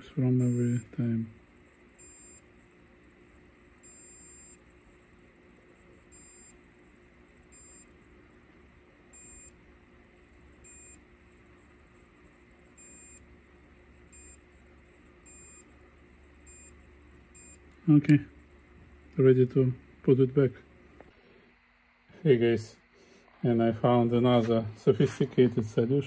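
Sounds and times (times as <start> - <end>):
faint steady hum: 0.0 - 26.0
short electronic beeps: 17.4 - 17.6.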